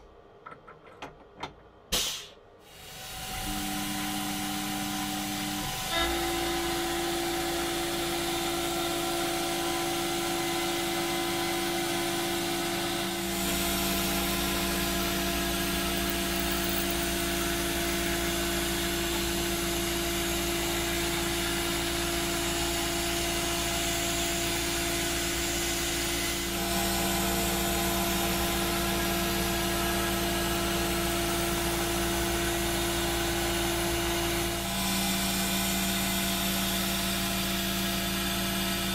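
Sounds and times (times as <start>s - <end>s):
electric motor humming: 13.2s - 19.3s.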